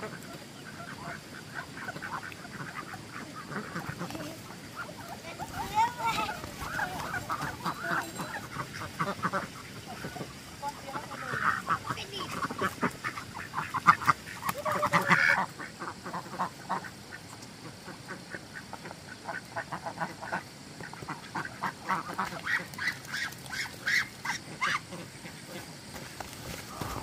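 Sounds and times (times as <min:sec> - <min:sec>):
ducks quacking: 0:00.0 - 0:27.0.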